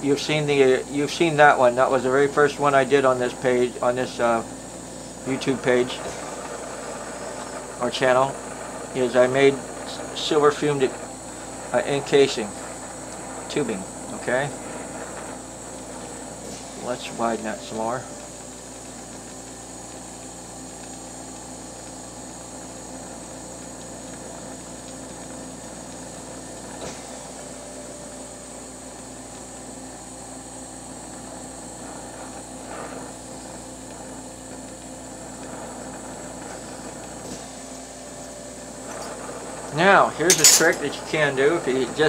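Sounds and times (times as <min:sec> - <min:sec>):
steady hum: 0:00.0 - 0:42.0
torch flame hissing: 0:00.0 - 0:42.0.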